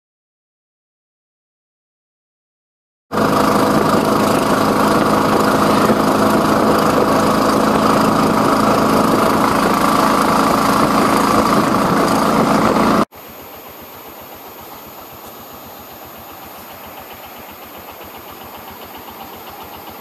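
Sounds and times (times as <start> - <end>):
bus diesel engine running: 3.1 - 20.0
road and wind noise: 3.2 - 13.1.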